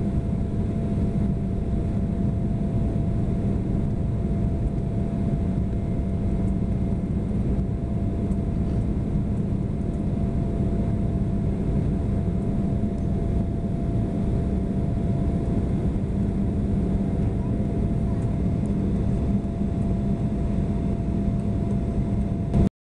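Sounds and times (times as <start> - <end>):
airplane cabin drone: 0.0 - 22.7.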